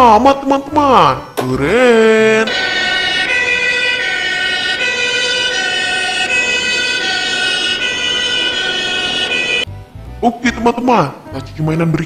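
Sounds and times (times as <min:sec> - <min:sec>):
two-tone toy fire truck siren: 0:02.4 - 0:09.7.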